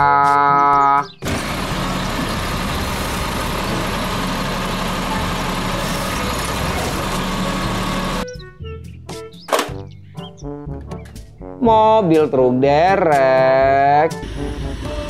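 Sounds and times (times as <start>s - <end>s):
garbage truck engine running: 1.1s - 8.2s
hydraulic arm lifting bin: 1.2s - 8.2s.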